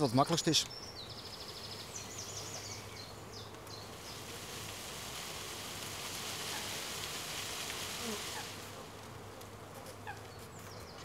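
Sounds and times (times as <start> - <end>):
leaves rustling: 0.0 - 11.0
bird chirps: 0.6 - 4.2
bee swarm buzzing: 0.8 - 11.0.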